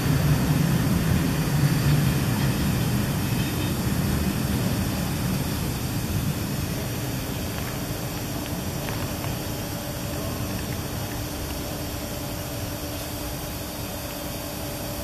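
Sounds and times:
train rumbling on rails: 0.0 - 15.0.

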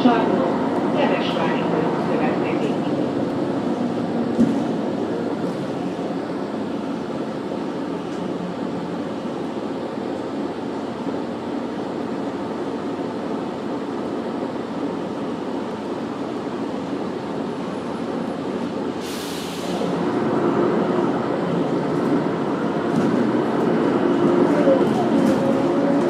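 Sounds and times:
bus engine and road noise: 0.0 - 26.0
short burst of hissing: 19.0 - 19.8.

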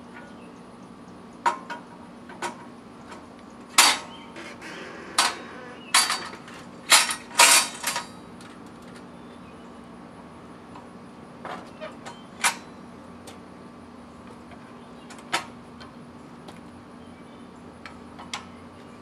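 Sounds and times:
metal clanks and clicks of mower lift: 1.4 - 9.1, 11.4 - 13.4.

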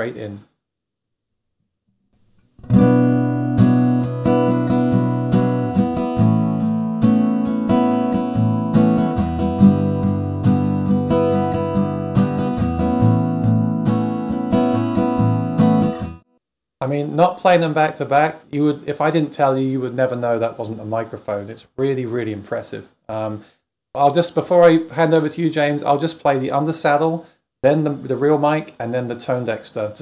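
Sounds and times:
acoustic guitar playing: 2.4 - 16.3.

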